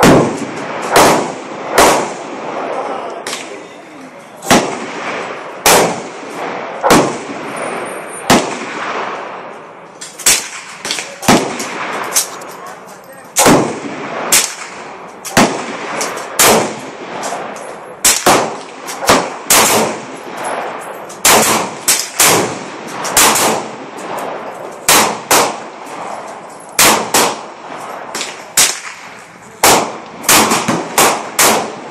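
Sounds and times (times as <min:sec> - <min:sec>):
gunshots with echo: 0:00.0 - 0:03.6, 0:04.4 - 0:09.6, 0:10.2 - 0:12.4, 0:13.4 - 0:31.9.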